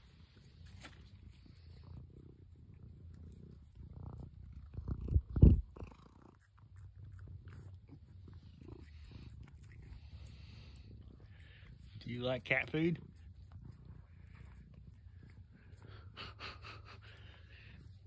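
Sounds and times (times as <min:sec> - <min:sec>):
cat purring: 0:00.0 - 0:18.0
bumps and rubbing on microphone: 0:03.5 - 0:05.8.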